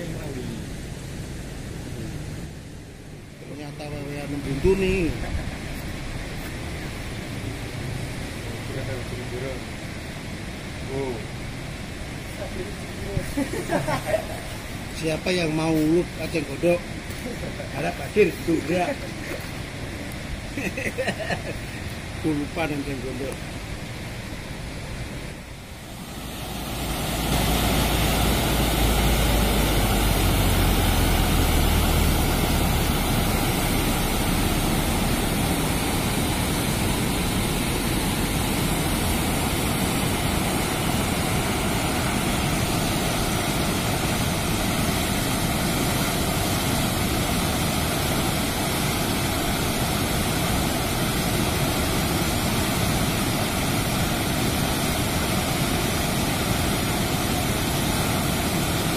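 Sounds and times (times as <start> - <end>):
water rushing through weir: 4.2 - 58.9.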